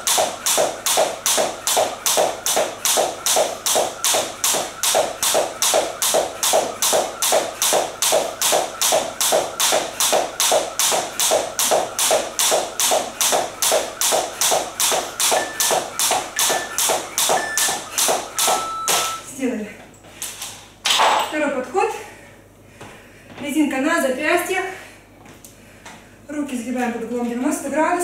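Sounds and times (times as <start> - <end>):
jump rope slapping the floor: 0.0 - 19.2
interval timer beeps: 2.0 - 19.3.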